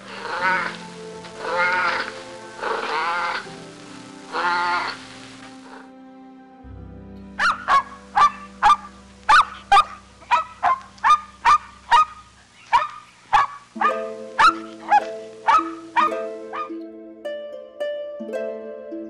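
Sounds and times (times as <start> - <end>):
animal calling: 0.0 - 5.9, 7.4 - 16.7
background music: 0.0 - 19.0.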